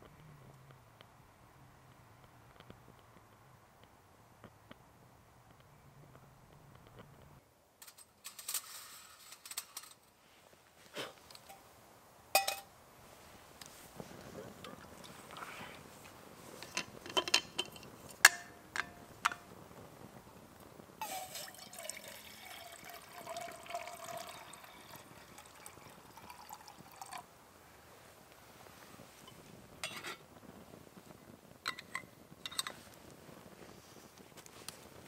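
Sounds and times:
liquid pouring into a steel pot: 0:21.0 - 0:27.3.

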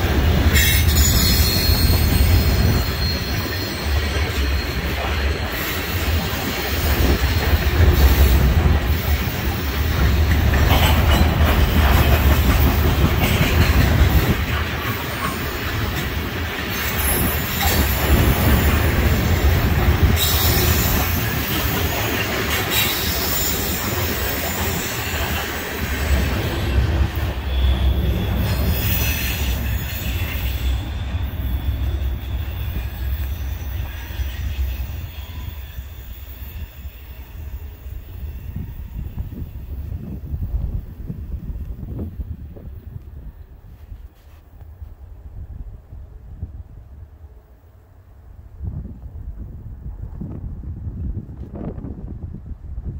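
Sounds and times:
wheels clattering on rails: 0:00.0 - 0:35.0
freight train rumbling past: 0:00.0 - 0:52.9.

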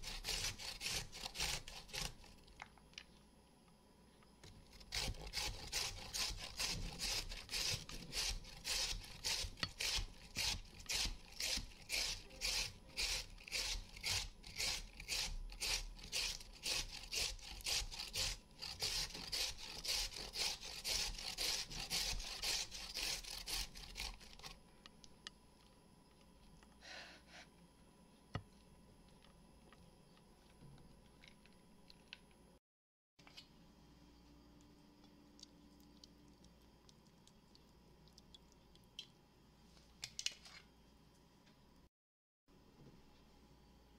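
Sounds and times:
carrot rasping on metal grater: 0:00.0 - 0:02.3, 0:04.8 - 0:24.5.

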